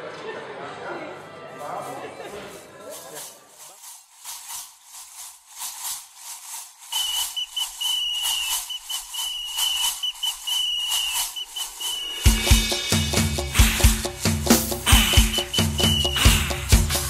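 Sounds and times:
high repeating rattle: 0:03.2 - 0:17.0
shrill whistle blasts: 0:06.9 - 0:12.7, 0:14.9 - 0:16.8.

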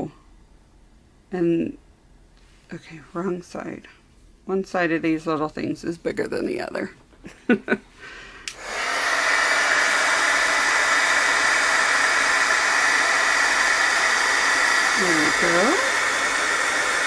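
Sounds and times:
heat gun switch click: 0:08.4 - 0:08.6
heat gun fan whine: 0:08.4 - 0:17.0.

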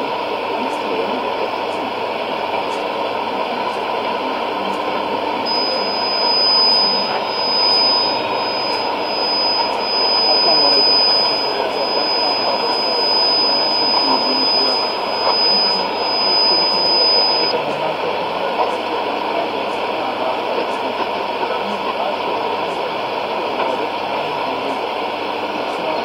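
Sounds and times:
radio static hiss: 0:03.8 - 0:24.8
radio voice: 0:04.3 - 0:22.2
high radio whistle: 0:05.4 - 0:17.6.

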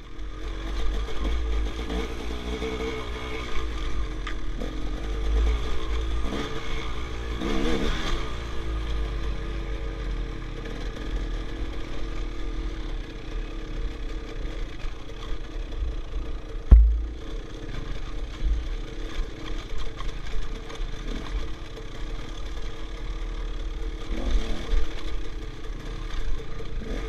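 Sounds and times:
dirt bike engine revving: 0:00.3 - 0:09.6, 0:10.6 - 0:27.0
heavy low rumble: 0:16.6 - 0:19.2.

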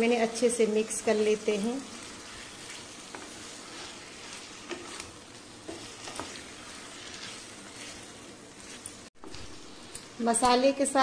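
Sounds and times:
oil sizzling: 0:00.0 - 0:11.0
spatula scraping a pan: 0:01.9 - 0:10.3.

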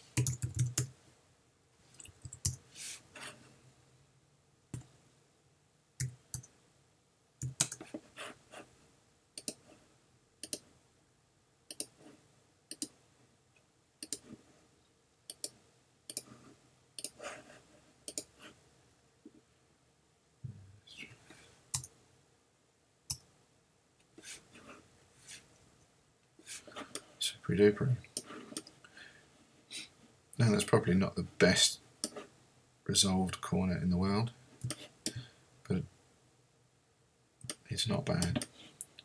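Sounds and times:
computer mouse buttons clicking: 0:00.2 - 0:00.9, 0:09.4 - 0:09.6, 0:10.4 - 0:10.6, 0:11.7 - 0:12.0, 0:12.7 - 0:13.0, 0:14.0 - 0:14.3, 0:15.3 - 0:16.3, 0:17.0 - 0:17.2, 0:18.1 - 0:18.3, 0:21.7 - 0:21.9.

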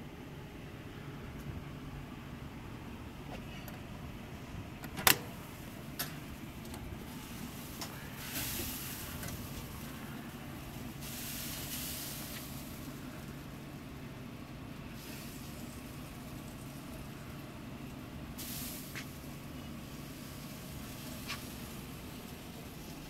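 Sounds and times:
metal door latch clacking: 0:04.8 - 0:05.3
hiss: 0:07.1 - 0:13.6, 0:14.8 - 0:17.4, 0:18.3 - 0:23.0.

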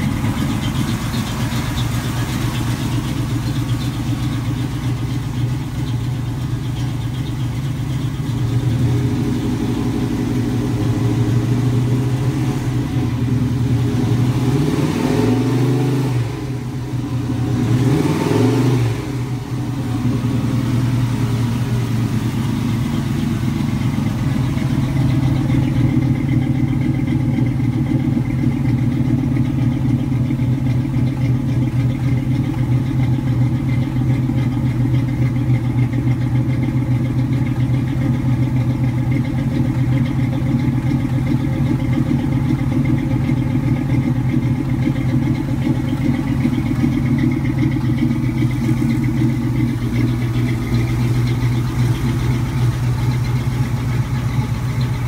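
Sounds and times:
van engine revving and idling: 0:00.0 - 0:55.0.

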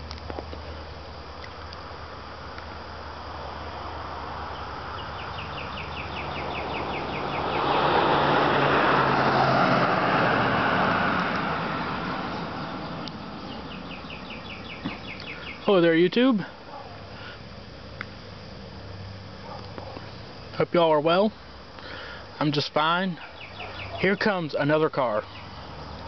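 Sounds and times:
car passing by: 0:05.9 - 0:14.0.

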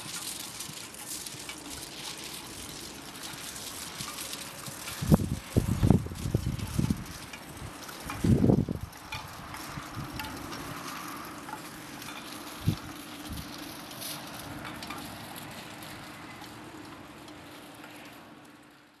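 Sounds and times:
wind buffeting microphone: 0:03.5 - 0:10.9, 0:12.4 - 0:13.7.

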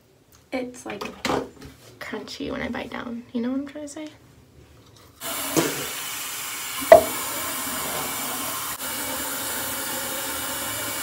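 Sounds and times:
tap water running into sink: 0:05.2 - 0:11.0
sharp knock: 0:06.9 - 0:07.2.

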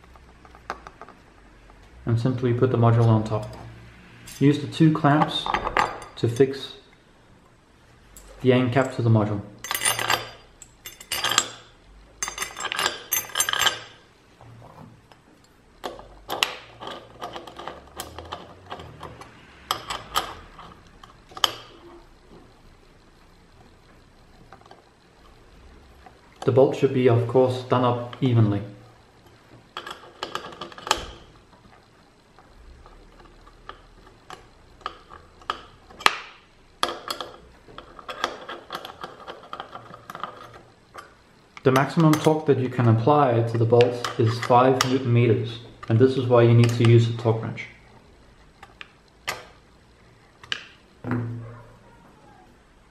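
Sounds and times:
metal bolts clinking: 0:09.6 - 0:14.0.

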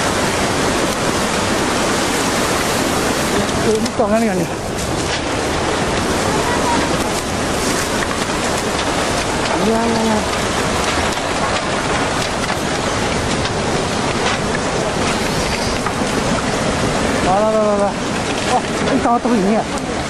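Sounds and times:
water rushing: 0:00.0 - 0:20.0
crackles and clicks: 0:02.5 - 0:20.0.

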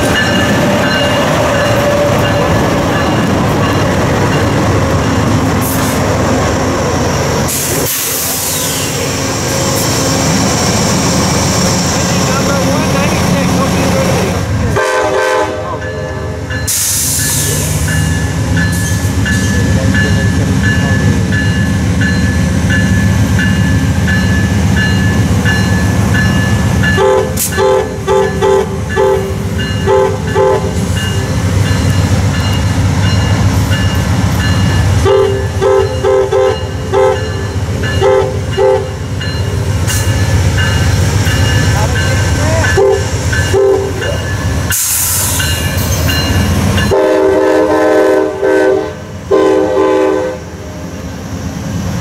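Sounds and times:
train rumbling: 0:00.0 - 0:52.0
train horn blasts: 0:14.7 - 0:16.3, 0:27.0 - 0:30.8, 0:35.0 - 0:37.3, 0:38.0 - 0:39.0, 0:42.7 - 0:44.0, 0:46.8 - 0:50.5.

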